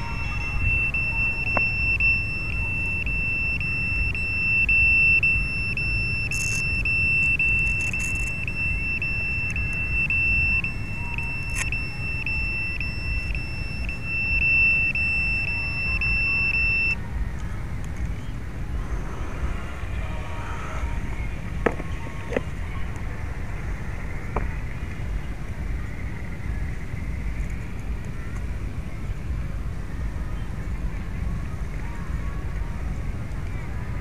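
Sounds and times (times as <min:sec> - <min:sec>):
high-pitched electronic beeper: 0:00.0 - 0:17.0
low steady rumble: 0:00.0 - 0:34.0.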